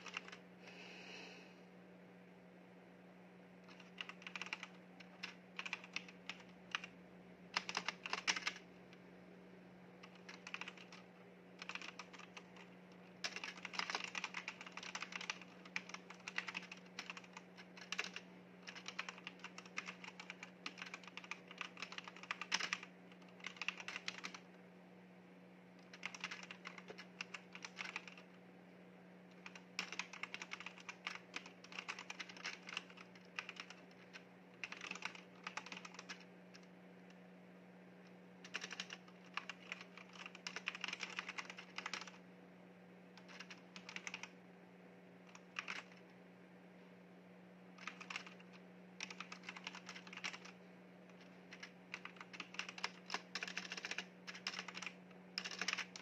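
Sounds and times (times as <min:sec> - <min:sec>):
mechanical keyboard typing: 0:00.0 - 0:00.4, 0:03.7 - 0:06.9, 0:07.5 - 0:08.6, 0:10.0 - 0:24.4, 0:25.8 - 0:28.3, 0:29.3 - 0:36.7, 0:38.4 - 0:42.2, 0:43.2 - 0:44.3, 0:45.3 - 0:46.0, 0:47.8 - 0:50.6, 0:51.2 - 0:56.0
faint low hum: 0:00.0 - 0:56.0.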